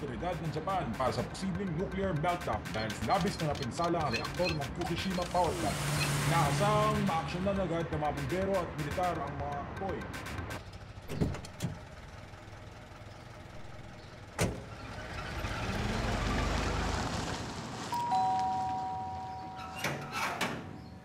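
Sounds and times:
van engine pulling away: 0:04.8 - 0:08.0, 0:10.3 - 0:19.7.

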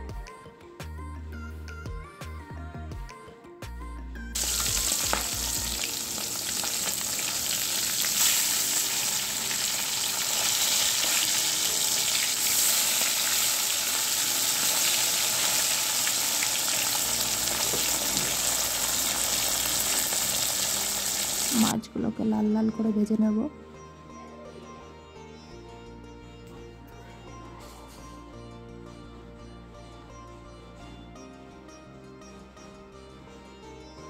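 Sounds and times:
fish deep-frying in hot oil: 0:04.4 - 0:21.7.

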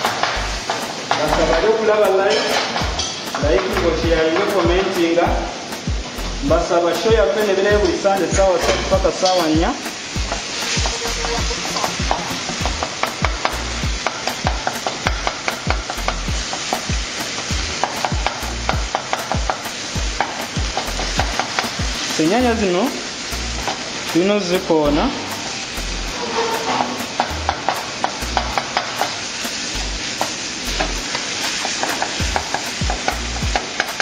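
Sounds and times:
food sizzling in a pan: 0:00.0 - 0:34.0
spoon scraping a pan: 0:26.0 - 0:27.4.

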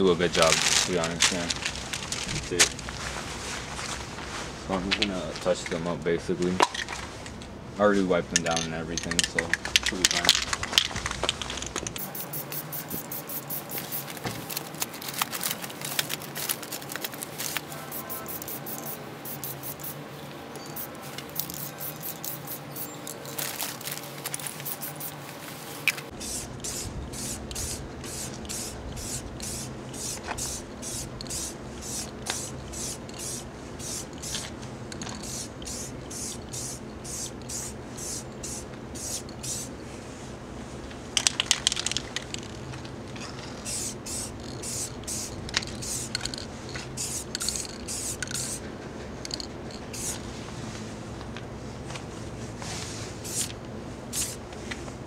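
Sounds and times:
spray paint can hissing: 0:11.5 - 0:20.0, 0:20.7 - 0:39.7, 0:43.6 - 0:48.6, 0:49.2 - 0:50.2, 0:53.2 - 0:54.4.

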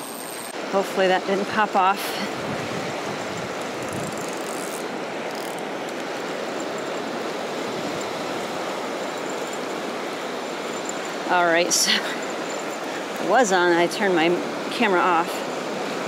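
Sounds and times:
surf waves washing on sand: 0:00.0 - 0:16.0
wind on microphone: 0:02.2 - 0:04.7
fishing reel cranking: 0:03.6 - 0:08.3, 0:09.0 - 0:09.8.

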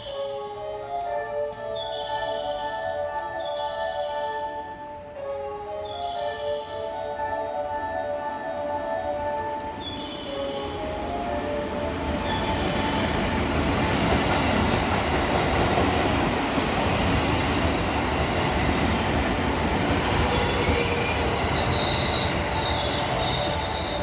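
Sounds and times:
train wheels rumbling on rails: 0:09.3 - 0:24.0.

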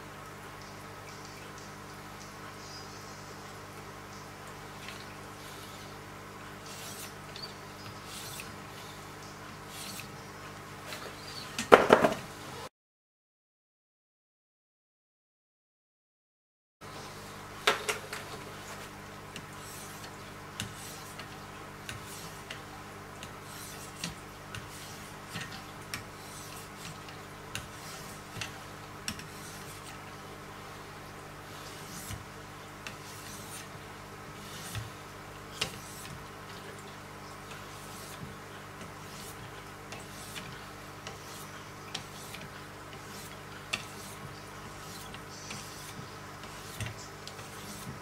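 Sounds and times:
sharpening stone rubbing blade: 0:06.7 - 0:08.9, 0:09.7 - 0:10.1, 0:43.0 - 0:46.8.

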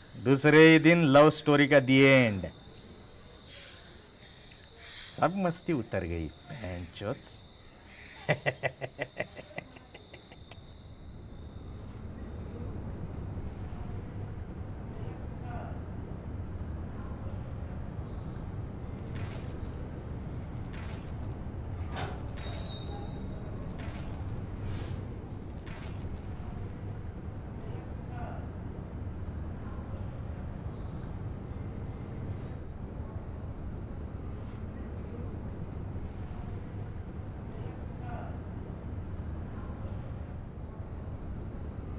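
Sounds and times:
cricket chirping: 0:00.0 - 0:41.9
man laughing: 0:08.2 - 0:10.6.

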